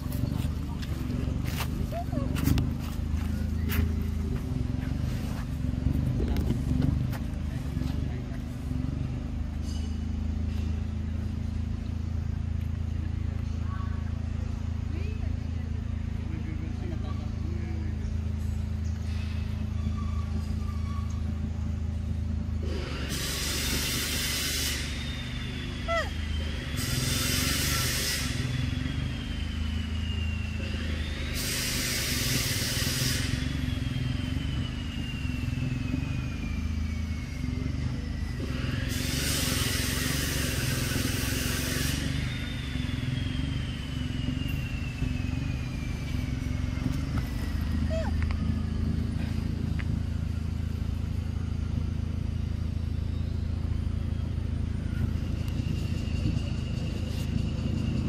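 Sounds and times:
low engine rumble: 0.0s - 58.0s
loud hissing bursts: 22.6s - 36.1s, 38.5s - 47.6s.

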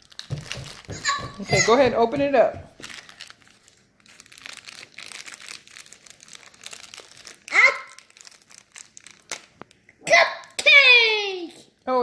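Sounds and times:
plastic bag crinkling: 0.0s - 9.9s
person speaking: 0.9s - 2.8s.

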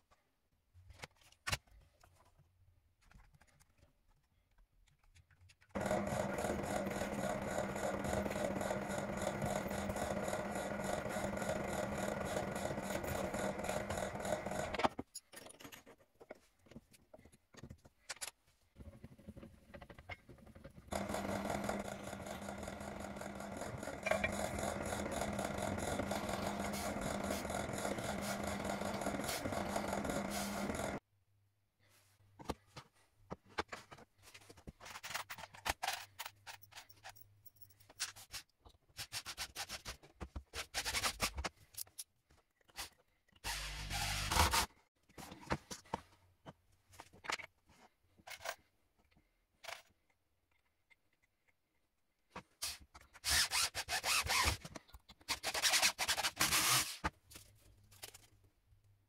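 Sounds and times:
power tool motor running: 5.8s - 14.8s, 20.9s - 31.0s, 56.1s - 56.9s.

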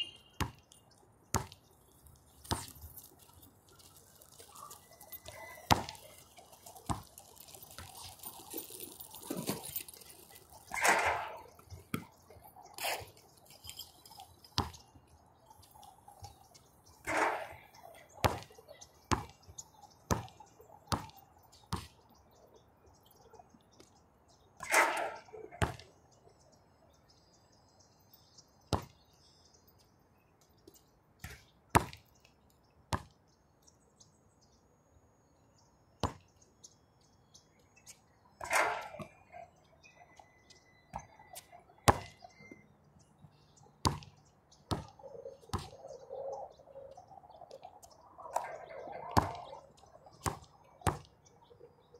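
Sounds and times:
basketball bouncing: 0.0s - 0.6s, 1.3s - 1.6s, 5.2s - 6.2s, 6.8s - 7.1s, 14.6s - 14.8s, 18.2s - 19.3s, 28.7s - 28.9s, 41.9s - 42.2s, 43.8s - 45.8s, 49.2s - 49.5s, 50.2s - 51.1s
ball clanging on hoop: 4.6s - 12.1s, 12.8s - 14.8s, 17.1s - 18.6s, 24.6s - 25.9s, 38.4s - 39.3s, 48.3s - 49.6s.

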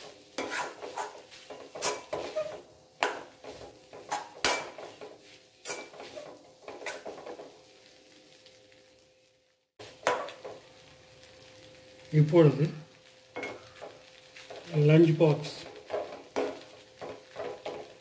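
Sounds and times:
ladle scraping and knocking wok: 0.0s - 7.6s, 13.4s - 14.7s, 15.6s - 18.0s.

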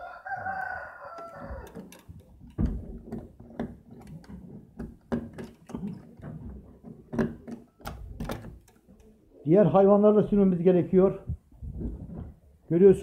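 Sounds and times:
padlock and hasp rattling: 1.1s - 9.2s
wooden door knocking: 1.5s - 8.7s.

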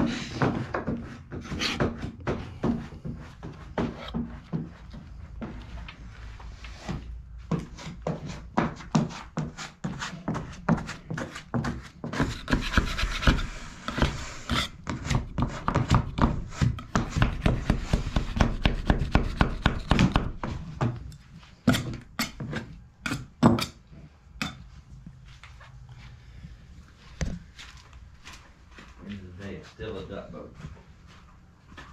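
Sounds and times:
sandpaper scraping on boat hull: 11.0s - 15.8s.

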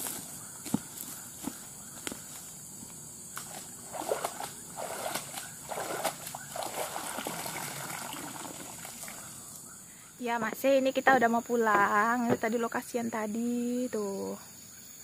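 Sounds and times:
water splashing and sloshing: 3.3s - 9.6s
water streaming off bag: 3.4s - 9.3s.

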